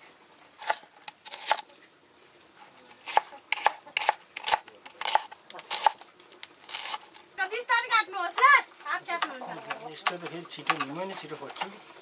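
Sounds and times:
cleaver chopping on plastic board: 10.0 - 11.0.

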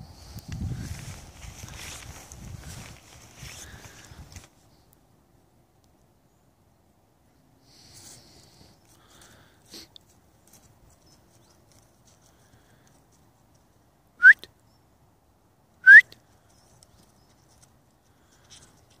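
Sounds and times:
person whistling: 14.2 - 14.5, 15.8 - 16.2.

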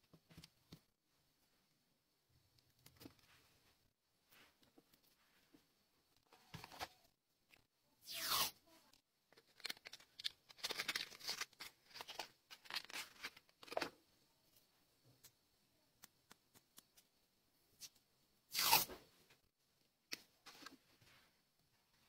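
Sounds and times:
paper ripping: 8.1 - 8.6, 9.4 - 13.4, 18.5 - 19.0
paper tearing and rustling: 9.4 - 13.8, 18.5 - 18.9.

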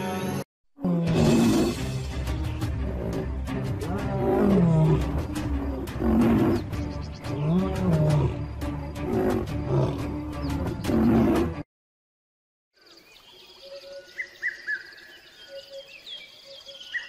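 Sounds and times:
background music: 0.0 - 11.6
lion roaring: 0.8 - 1.8, 2.8 - 6.7, 7.3 - 11.6.

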